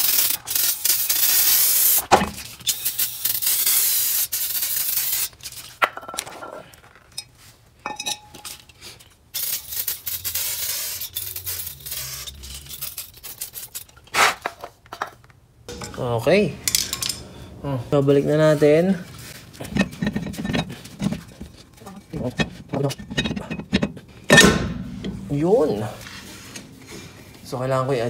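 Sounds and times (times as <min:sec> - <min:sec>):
aerosol spray hissing: 0:09.4 - 0:12.2.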